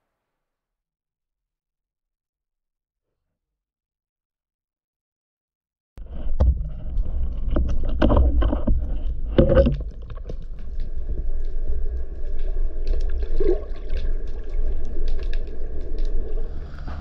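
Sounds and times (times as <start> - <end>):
underwater rumble: 6.0 - 17.0
knocks and clatter of handling: 6.1 - 10.7.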